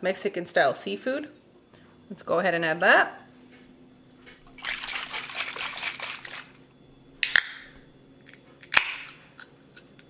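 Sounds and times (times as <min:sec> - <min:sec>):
liquid trickling into bowl: 0:04.4 - 0:06.6.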